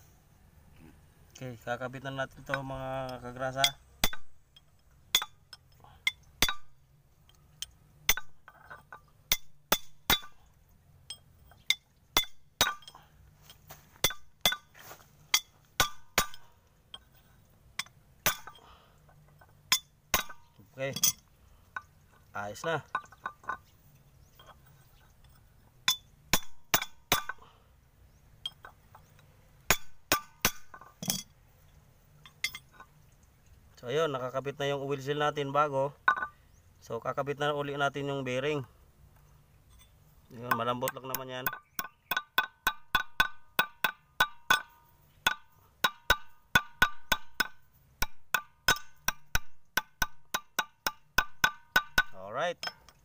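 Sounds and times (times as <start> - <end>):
steel bar clinking on metal: 19.4 - 21.9, 28.4 - 31.3, 32.2 - 32.9, 36.1 - 36.4, 39.7 - 53.0
metal taps on a bearing: 22.8 - 27.5, 28.4 - 31.3, 36.0 - 36.5, 39.2 - 53.0.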